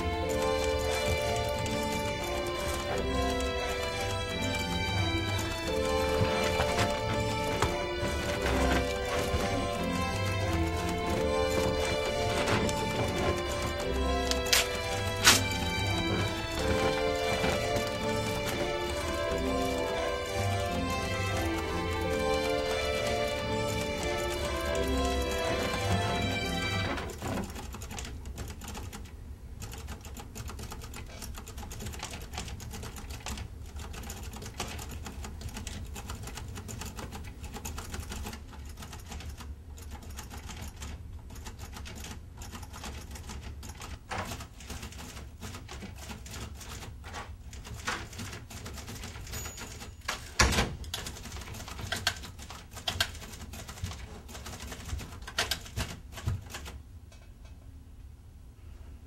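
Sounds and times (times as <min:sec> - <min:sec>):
typewriter keys clacking: 0:00.0 - 0:56.8.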